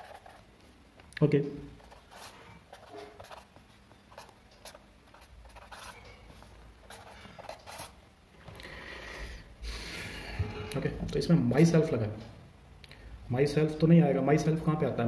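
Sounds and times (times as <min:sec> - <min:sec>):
pen scratching on paper: 0:00.0 - 0:00.4, 0:01.8 - 0:08.0.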